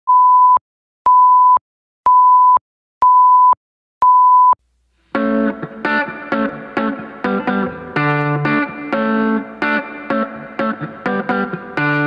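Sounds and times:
music: 5.1s - 12.0s.

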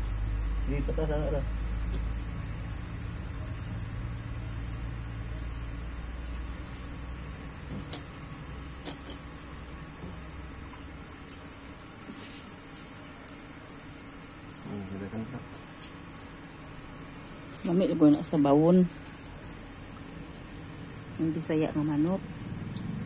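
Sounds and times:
high-pitched insect trilling: 0.0s - 23.0s.

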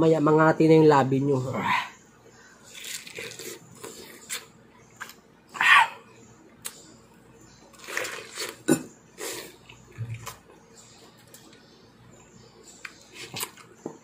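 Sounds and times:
wet slurping and chewing: 2.7s - 5.1s, 7.7s - 10.4s.

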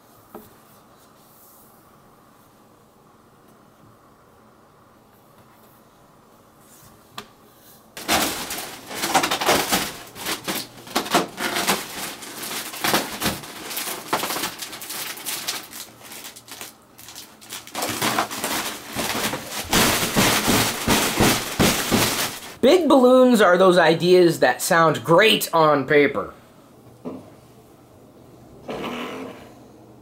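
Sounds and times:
foil balloon crinkling and rustling: 8.0s - 22.6s.

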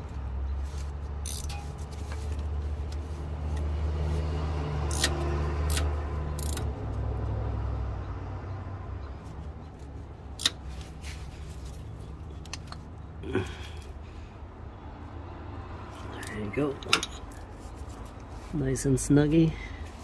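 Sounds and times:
wrench clicking: 1.2s - 1.6s, 4.9s - 6.7s, 10.4s - 10.6s.

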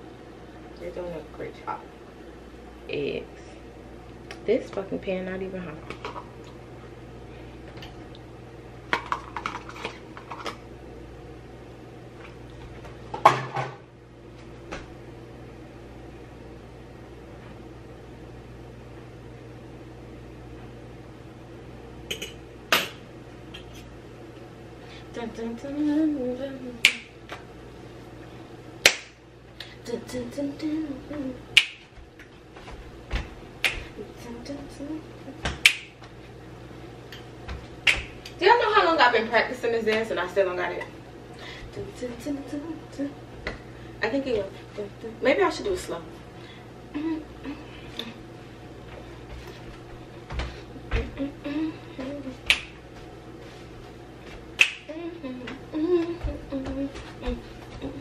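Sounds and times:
steady low hum: 0.0s - 58.0s
sharp finger snaps: 26.8s - 27.1s, 28.8s - 29.2s, 31.6s - 31.8s, 35.5s - 36.0s, 37.8s - 38.4s, 52.4s - 52.8s, 54.6s - 54.9s
person humming softly: 29.6s - 31.4s, 46.9s - 48.2s, 50.8s - 52.6s, 54.8s - 58.0s.

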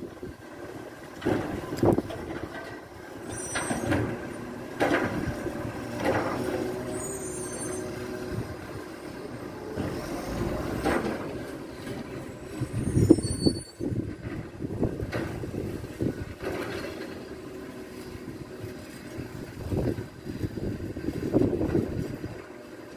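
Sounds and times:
diesel truck engine running: 0.0s - 22.9s
clunks and clatters: 1.1s - 6.9s, 10.7s - 13.1s, 13.8s - 17.3s.

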